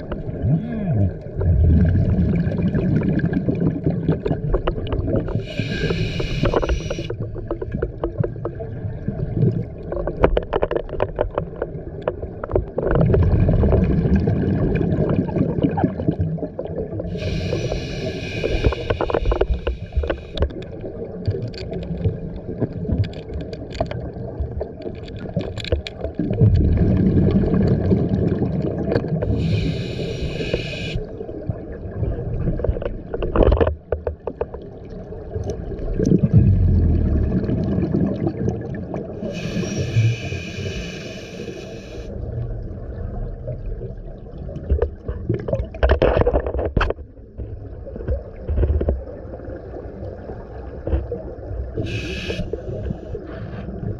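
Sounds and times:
exhaled bubbles rumbling: 0.0 - 41.1, 41.8 - 53.9
regulator inhale hiss: 5.4 - 7.1, 17.1 - 20.4, 29.2 - 31.2, 39.2 - 42.1, 51.8 - 53.7.

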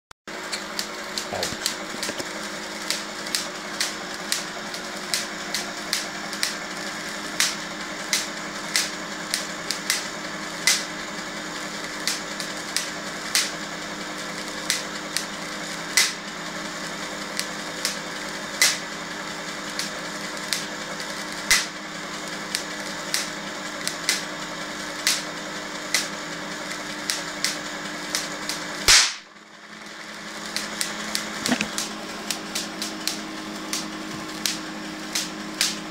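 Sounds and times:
generator humming: 0.3 - 35.9
loud spark crack: 0.8 - 11.0, 11.6 - 29.3
static sparks snapping: 21.4 - 21.8, 27.0 - 29.3, 30.4 - 35.8.

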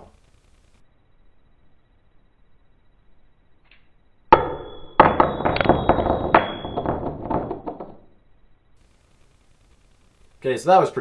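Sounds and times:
coin clinking on tabletop: 4.4 - 8.0
coin spinning and rattling: 4.7 - 8.0.

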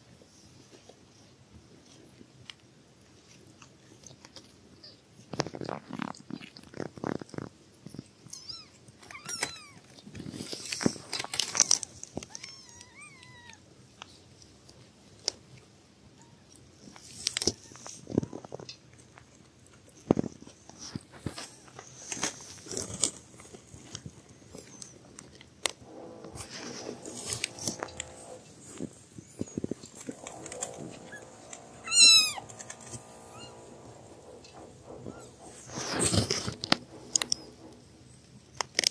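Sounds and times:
kittens suckling: 25.8 - 37.8
kitten mewing: 31.2 - 32.5.

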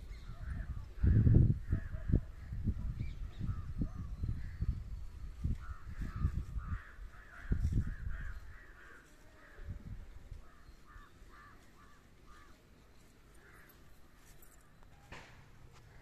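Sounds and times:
crow cawing: 5.6 - 9.7, 10.4 - 12.6.

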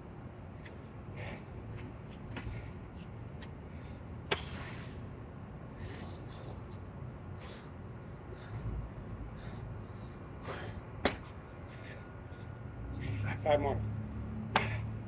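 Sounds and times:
man breathing hard: 1.0 - 2.8, 3.6 - 5.0, 5.7 - 6.6, 7.3 - 13.4, 14.5 - 15.0
sharp slap: 4.3 - 4.5, 14.5 - 14.8.

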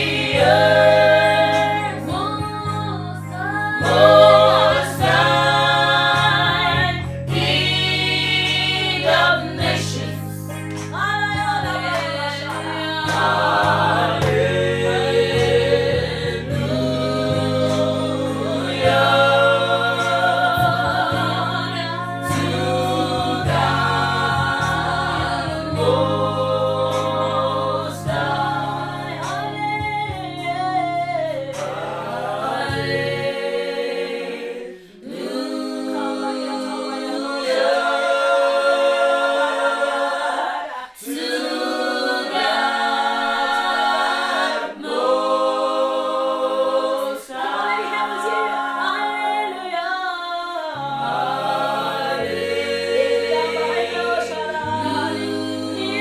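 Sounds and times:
low keyboard: 0.0 - 40.0
choir singing in harmony: 0.0 - 56.0.

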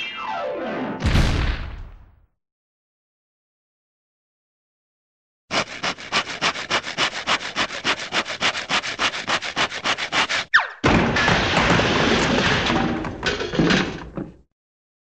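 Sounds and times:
loud crash rumbling: 1.0 - 2.2
cartoon hand saw cutting: 5.5 - 10.5
falling whistle: 10.5 - 10.8.

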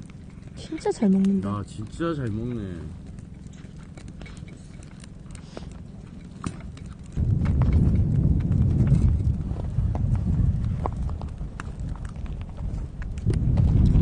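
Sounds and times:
cat chewing and tearing meat: 0.0 - 14.0
loud low rumble: 7.2 - 11.6.

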